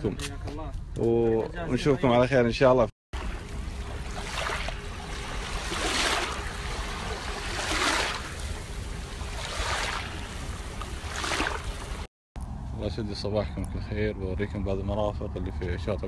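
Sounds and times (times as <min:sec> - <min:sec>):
low steady rumble: 0:02.5 - 0:15.9
small waves lapping on sand: 0:03.2 - 0:12.1.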